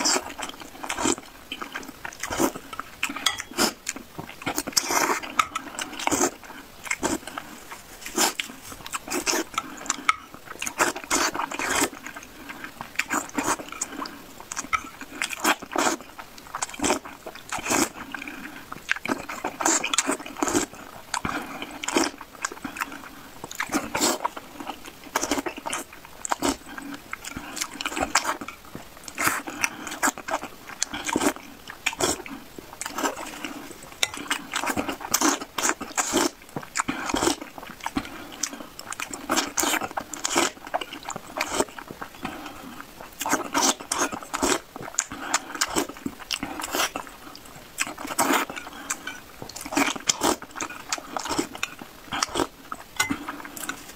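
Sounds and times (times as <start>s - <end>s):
person chewing: 0.0s - 53.9s.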